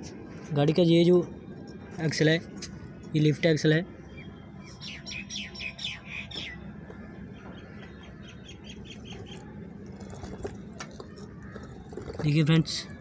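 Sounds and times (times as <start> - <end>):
small birds chirping: 4.0 - 13.0.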